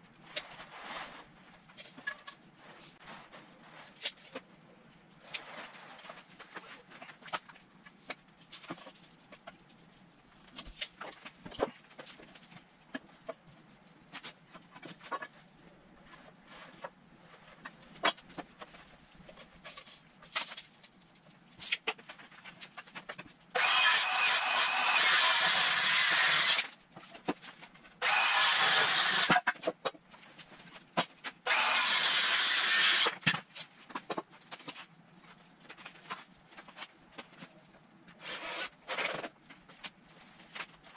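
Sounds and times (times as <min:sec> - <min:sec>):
power drill driving screws: 0:23.6 - 0:26.6, 0:28.0 - 0:29.4, 0:31.5 - 0:33.2.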